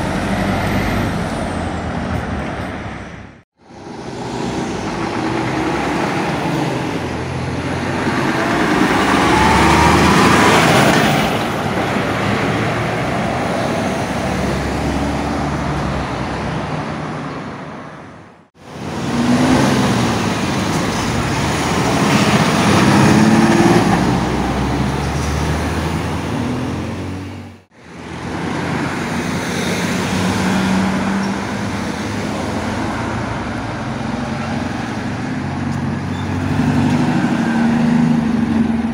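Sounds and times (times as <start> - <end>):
lorries passing: 0.0 - 38.9.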